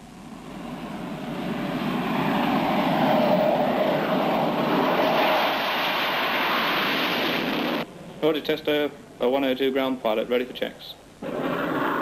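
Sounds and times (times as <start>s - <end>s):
jet engine roar: 0.0s - 7.9s, 11.2s - 12.0s.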